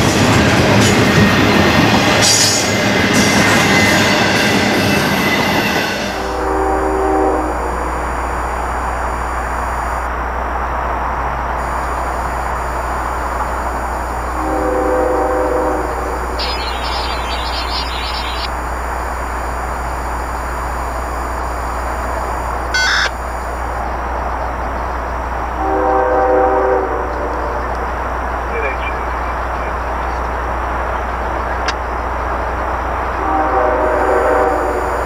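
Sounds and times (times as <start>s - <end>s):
train rumbling past: 0.0s - 35.0s
locomotive air horn: 5.7s - 10.1s, 11.6s - 17.2s, 25.5s - 27.9s, 33.1s - 35.0s.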